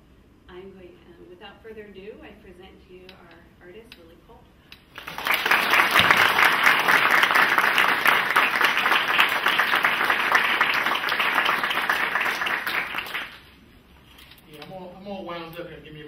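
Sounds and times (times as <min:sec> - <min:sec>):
audience applauding: 0:05.0 - 0:13.5.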